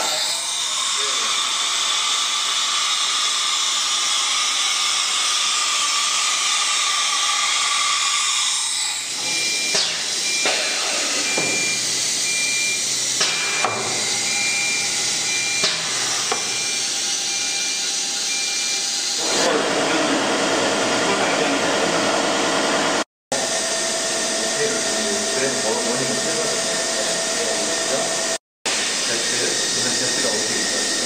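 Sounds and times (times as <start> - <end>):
short beep: 9.2 - 12.8.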